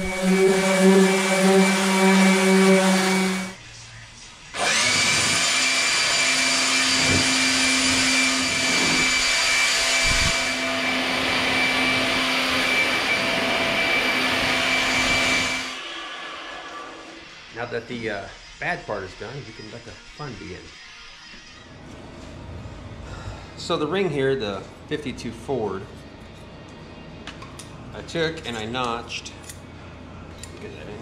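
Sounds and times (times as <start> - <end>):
leaf blower whining: 0.0 - 3.6, 4.6 - 17.3
orbital sander on steel: 0.0 - 3.6, 4.6 - 17.4.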